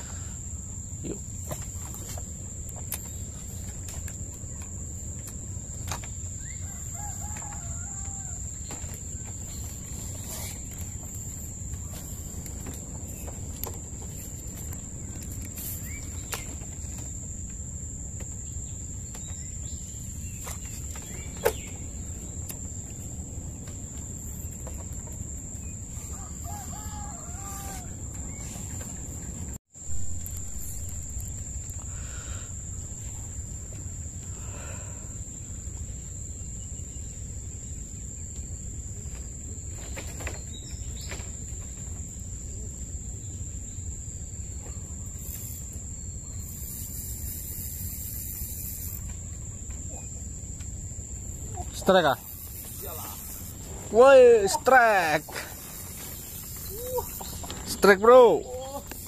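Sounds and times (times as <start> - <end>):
rooster crowing: 6.4 - 8.7, 26.0 - 28.1.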